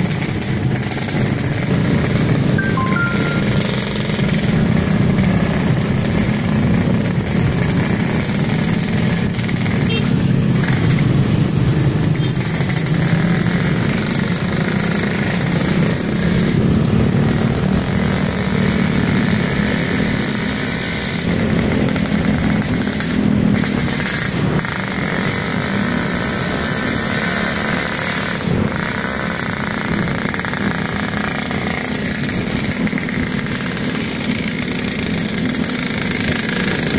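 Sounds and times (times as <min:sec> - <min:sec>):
scooter and motorcycle engines: 0:00.0 - 0:36.9.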